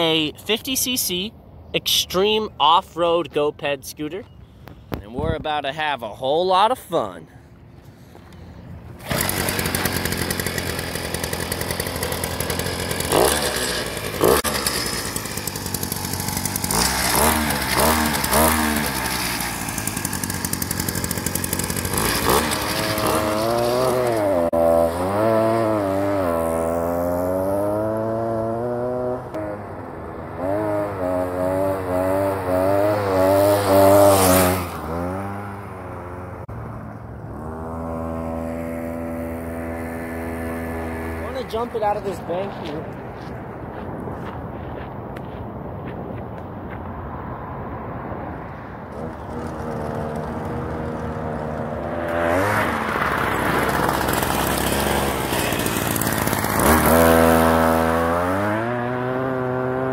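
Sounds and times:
scooter engine revving: 8.8s - 42.1s, 48.9s - 59.9s.

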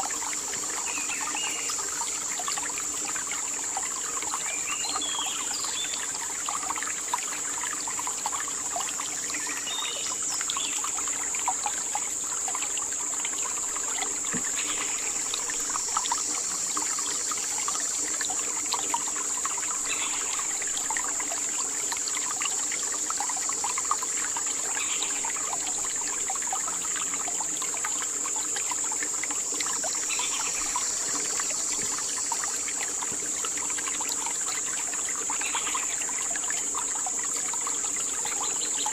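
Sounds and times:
high-pitched insect drone: 22.4s - 38.9s.

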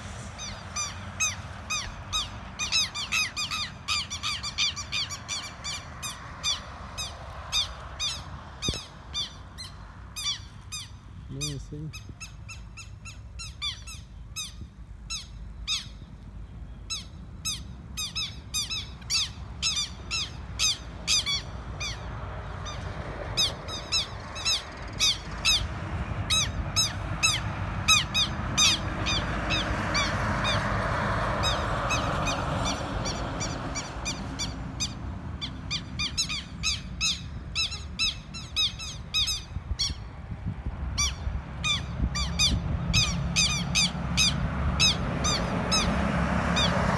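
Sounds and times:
rushing noise: 0.0s - 4.2s
bird alarm calls: 0.4s - 16.1s, 31.4s - 40.1s.

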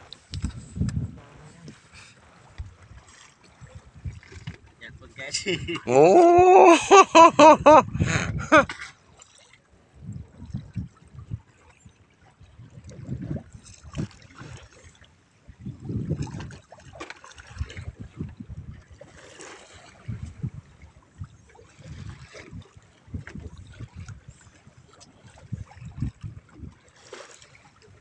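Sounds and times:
water lapping against boat hull: 0.0s - 28.0s
person's voice: 4.9s - 7.0s.

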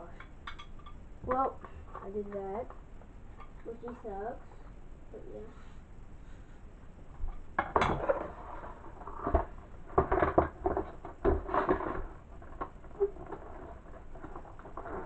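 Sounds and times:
objects knocking on wooden floor: 7.6s - 8.4s, 9.2s - 13.7s.

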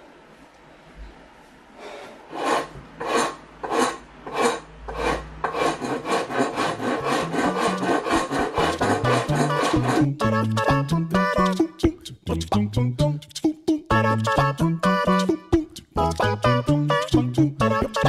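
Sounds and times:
hand file rasping on wood: 2.3s - 10.1s
music bass line: 7.0s - 7.9s, 8.6s - 18.0s.

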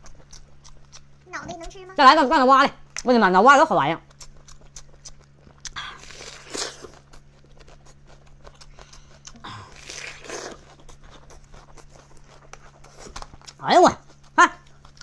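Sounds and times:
chewing with wet mouth clicks: 0.0s - 1.9s, 2.8s - 3.2s, 4.0s - 15.0s
steady low hum: 0.0s - 15.0s
crunchy bites into onion: 4.1s - 13.6s.

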